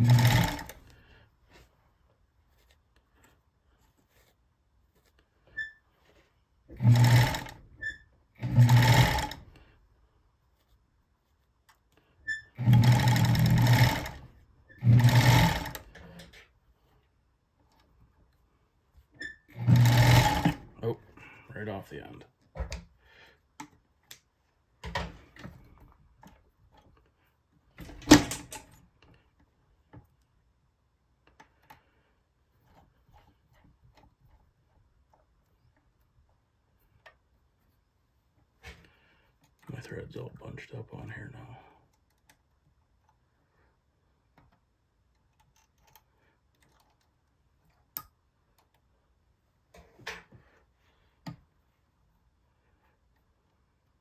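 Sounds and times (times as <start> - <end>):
sewing machine knocks and clicks: 0.0 - 0.8, 6.7 - 7.6, 8.4 - 9.4, 12.6 - 14.2, 14.8 - 16.2, 19.5 - 20.7, 27.8 - 28.7
faint clicks and metal taps: 10.6 - 12.5, 15.8 - 19.4, 22.4 - 30.5, 31.1 - 39.8, 41.8 - 51.8.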